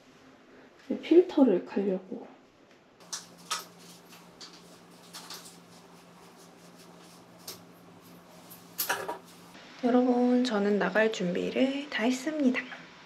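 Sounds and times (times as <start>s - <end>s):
steady low hum: 3.0s - 10.9s.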